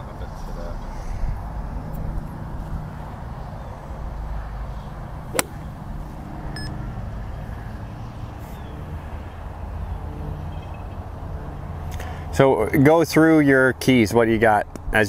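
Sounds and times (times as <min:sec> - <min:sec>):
golf club striking ball: 0:05.3 - 0:05.8.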